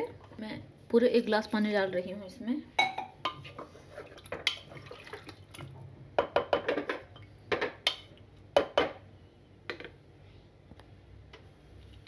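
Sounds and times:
wooden spatula scraping metal pot: 3.3 - 4.8.

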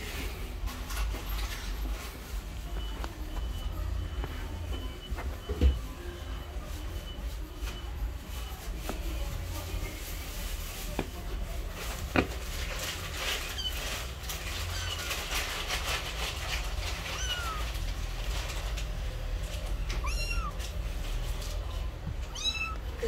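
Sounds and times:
kitten mewing: 17.0 - 17.8, 19.9 - 20.6, 22.3 - 22.9.

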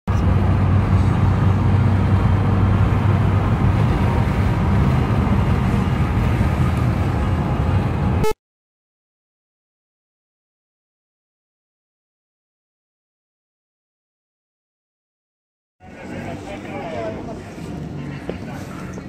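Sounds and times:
car engine and road noise drone: 0.1 - 8.4, 15.8 - 19.0.

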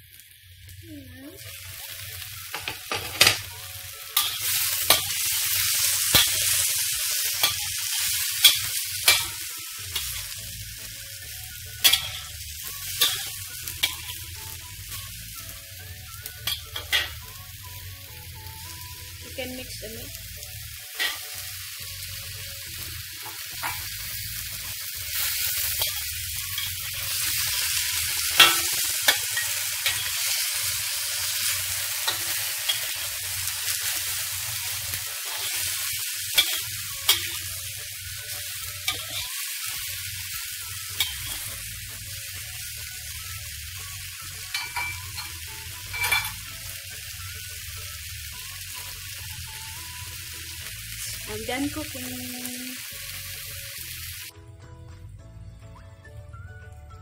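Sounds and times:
food sizzling in a wok: 0.0 - 54.3
metal spatula scraping a pan: 1.8 - 10.5, 11.8 - 14.6, 20.9 - 21.5, 25.0 - 41.6, 44.4 - 46.5.

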